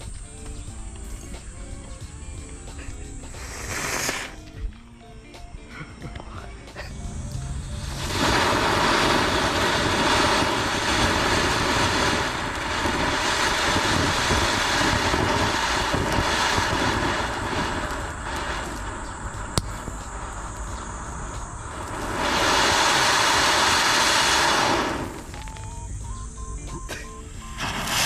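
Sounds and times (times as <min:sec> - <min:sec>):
engine noise with rushing hiss: 0:06.7 - 0:28.0.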